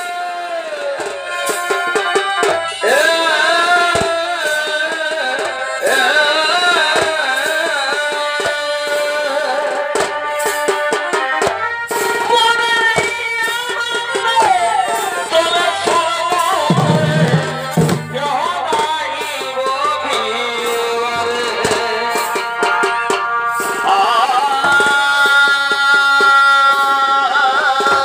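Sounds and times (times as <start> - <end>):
drumming: 9.9 - 28.0.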